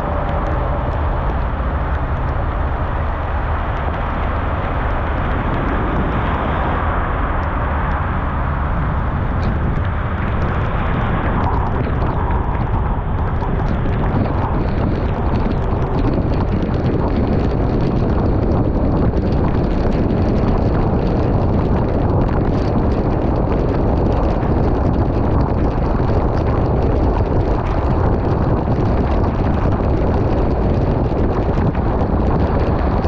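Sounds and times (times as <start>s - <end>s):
heavy rain on car windshield: 9.4s - 33.0s.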